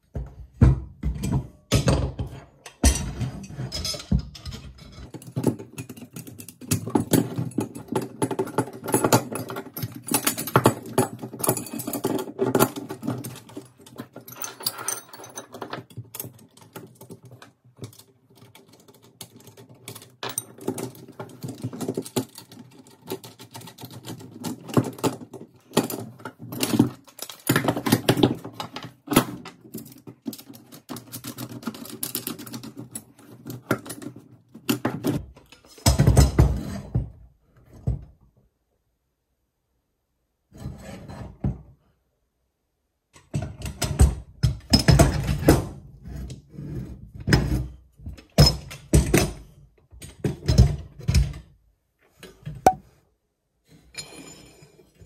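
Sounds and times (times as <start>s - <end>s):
metal bolts clicking and rattling: 1.2s - 24.8s.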